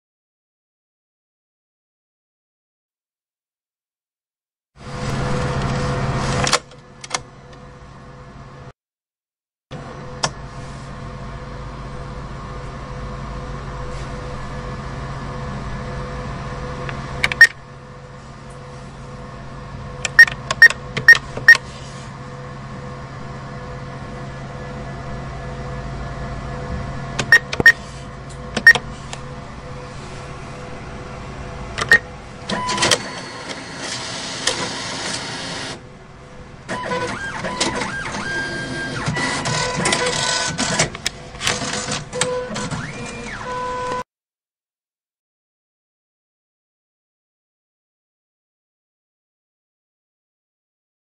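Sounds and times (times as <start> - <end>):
machine hum: 9.7 - 44.0
mechanism whirring and clattering: 15.5 - 17.7, 26.5 - 29.9, 30.5 - 35.9, 36.6 - 44.0
keypad beeps: 20.1 - 21.6, 27.3 - 27.8.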